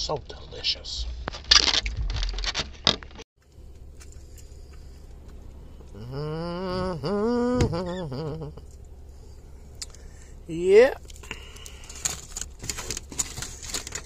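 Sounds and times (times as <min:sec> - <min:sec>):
man humming: 0:05.7 - 0:08.7.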